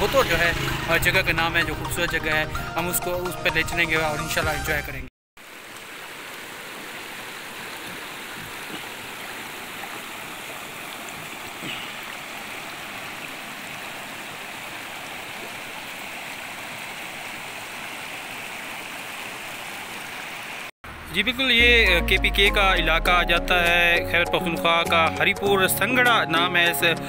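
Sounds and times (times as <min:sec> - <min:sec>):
stream flowing over rocks: 0:05.4 - 0:20.7.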